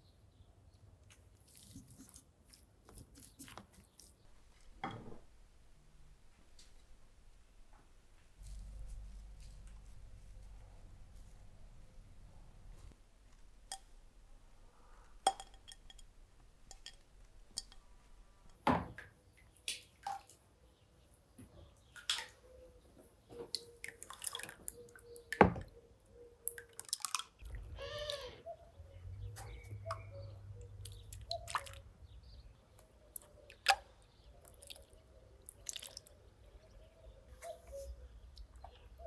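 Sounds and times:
liquid egg splashing and dripping: 26.4 - 27.6, 30.8 - 31.8, 33.1 - 36.2.

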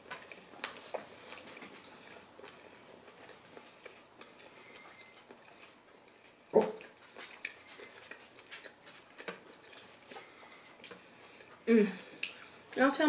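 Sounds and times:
chewing: 0.0 - 12.8.

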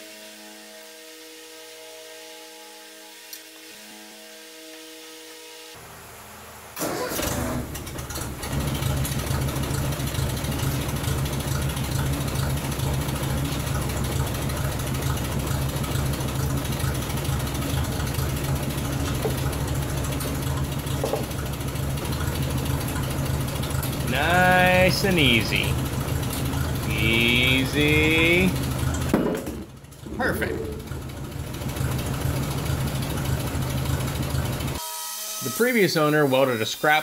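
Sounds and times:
tractor engine idling: 6.8 - 34.8
knocks: 21.0 - 21.3.

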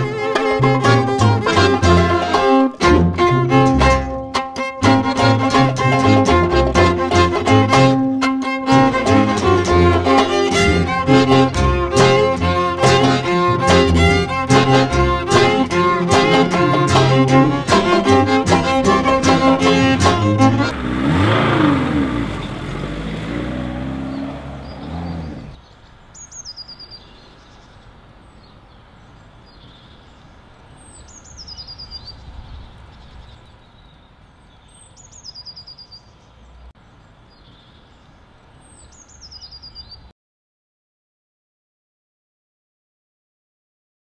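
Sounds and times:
faint outdoor background: 0.0 - 40.2
songbird chirping: 9.4 - 40.1
rumble rising and falling in pitch: 13.3 - 25.6.

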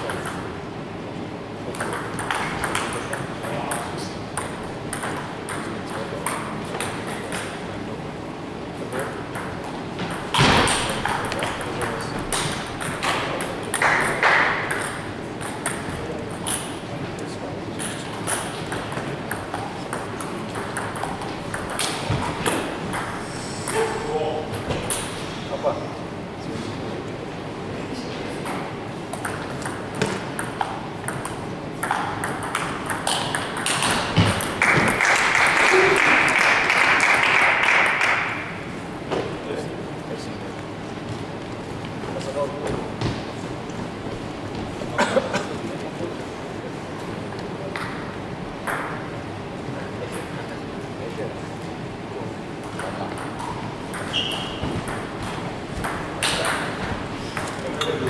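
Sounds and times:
table tennis ball hits: 1.7 - 7.7, 9.0 - 16.8, 17.8 - 24.0, 28.4 - 39.3, 48.6 - 49.1, 52.6 - 58.0
table tennis ball clicking: 29.2 - 35.0.

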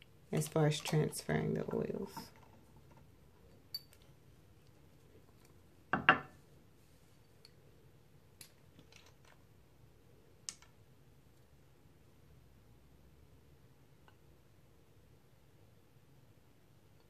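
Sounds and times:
glass bottles knocking on countertop: 5.9 - 6.4.

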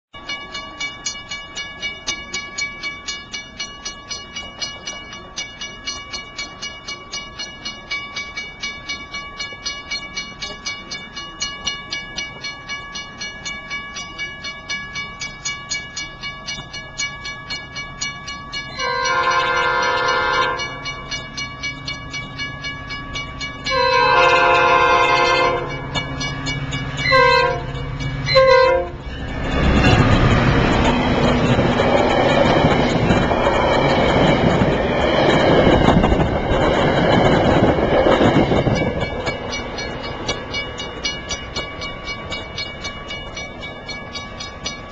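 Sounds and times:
crossing warning bell ringing: 0.1 - 44.9
locomotive horn blasts: 18.8 - 20.7, 23.7 - 25.7, 27.0 - 27.7, 28.3 - 29.0
train rushing past: 18.8 - 44.9.

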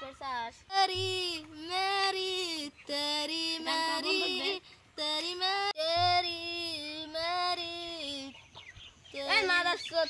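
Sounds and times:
high-pitched voice singing: 0.7 - 8.4.

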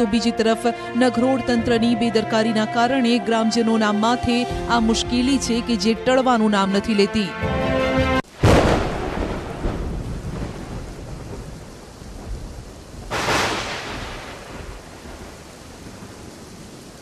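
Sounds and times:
steady rain: 8.2 - 17.0
sharp thunderclap: 8.3 - 16.7
thunder rumbling: 8.3 - 17.0.

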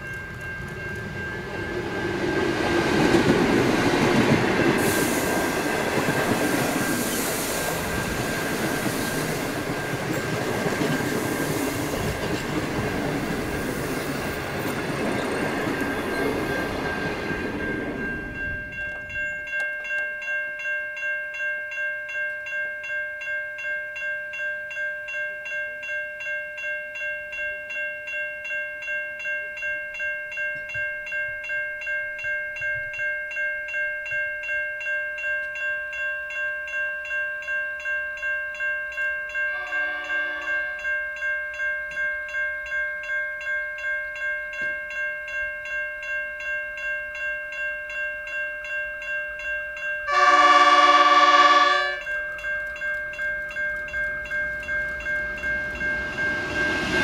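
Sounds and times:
train carriages rolling: 0.0 - 19.2
level crossing bells ringing: 0.0 - 57.0
distant locomotive horn: 39.5 - 41.0, 50.1 - 52.1.

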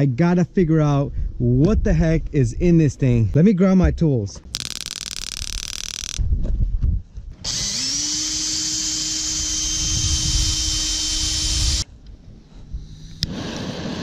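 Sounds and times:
electric power tool whining: 4.6 - 6.2, 7.4 - 11.9.

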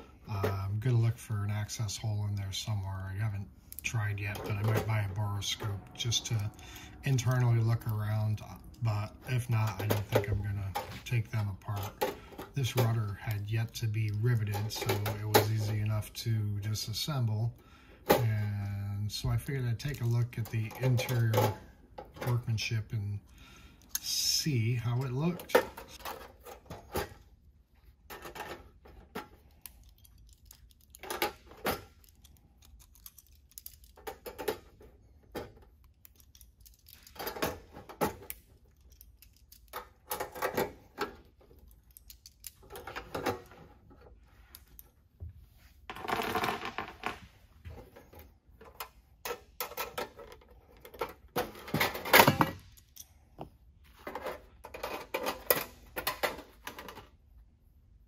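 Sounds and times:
small metallic clicks and clinks: 29.4 - 31.4, 32.0 - 34.6, 52.7 - 53.2.

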